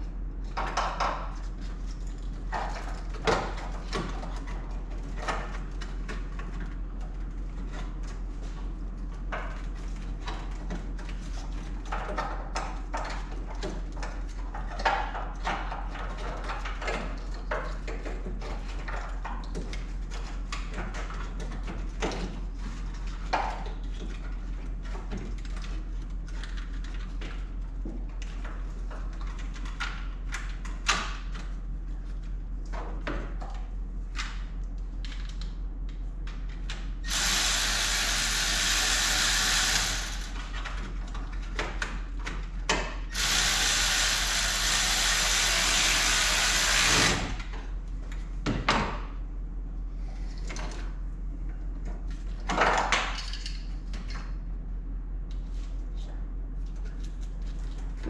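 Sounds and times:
low mains hum: 0.0 - 58.0
power tool running: 37.0 - 40.4, 43.1 - 47.4.

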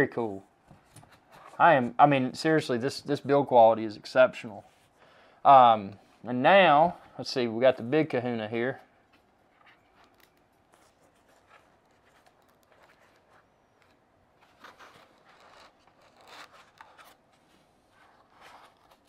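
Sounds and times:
packaging rubs and scrapes: 9.5 - 19.0.

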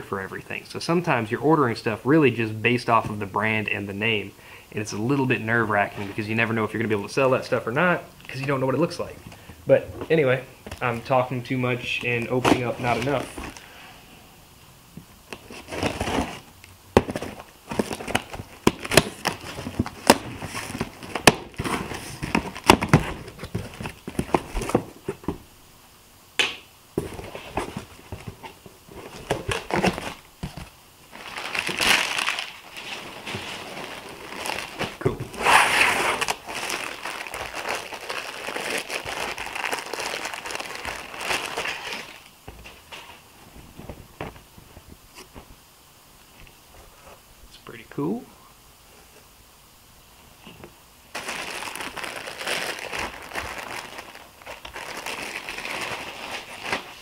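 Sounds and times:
plastic packaging crinkling: 17.1 - 24.8, 29.1 - 42.3, 51.1 - 57.0.

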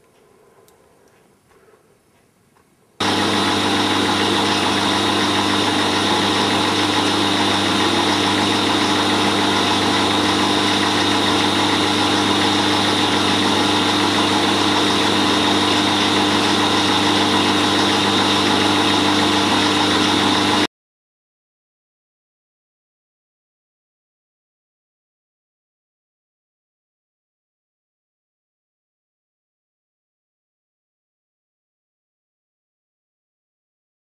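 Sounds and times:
machine tool hum and whine: 3.0 - 20.7.

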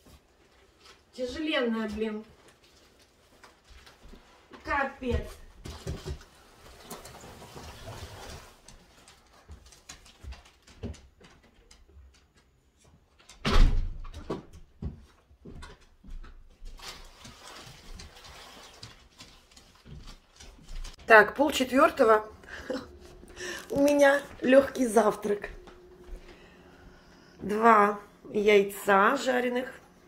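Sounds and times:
cardboard box dragged across floor: 6.4 - 8.7
door shutting with a thud: 13.4 - 14.6.

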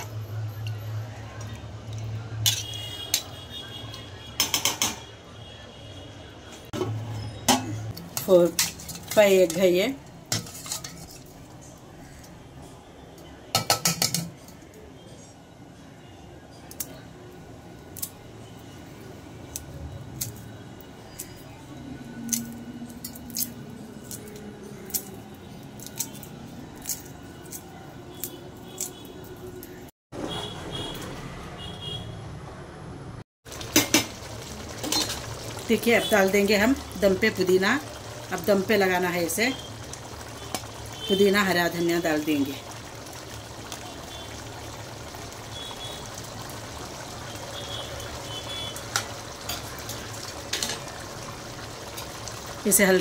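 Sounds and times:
pot bubbling and hissing: 6.7 - 12.4, 33.4 - 53.0.

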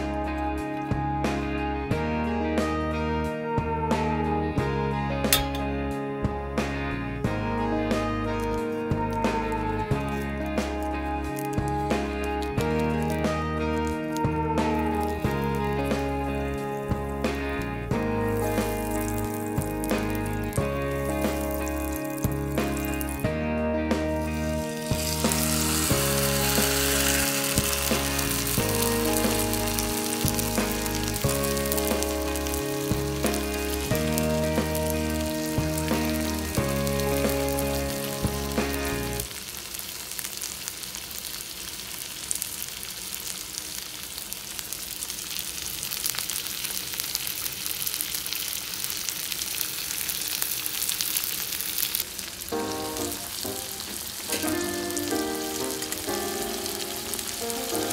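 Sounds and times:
background music: 0.0 - 39.3, 52.5 - 57.9
steak sizzling: 5.3 - 5.9, 7.3 - 57.9.

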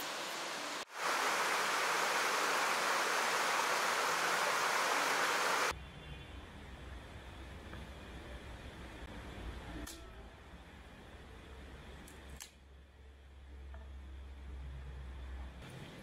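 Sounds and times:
stream rushing over rocks: 0.9 - 5.7.

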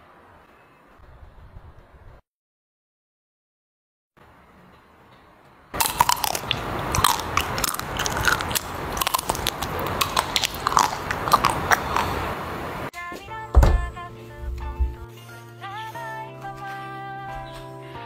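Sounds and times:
crunching chocolate shell: 5.8 - 12.2.

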